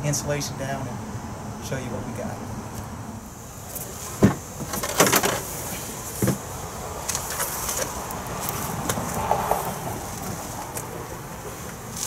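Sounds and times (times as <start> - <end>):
insulation rustling and scraping: 3.6 - 12.0.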